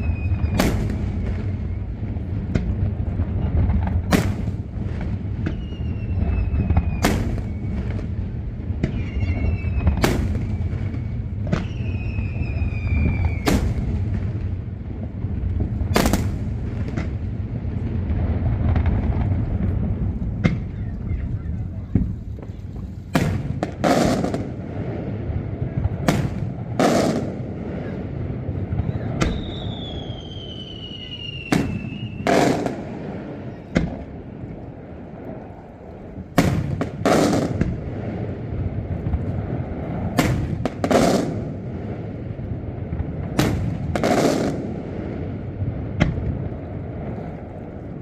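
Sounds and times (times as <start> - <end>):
descending firework whistle: 0.0 - 3.2, 4.0 - 14.4, 25.6 - 34.7
firework shells exploding: 0.0 - 48.0.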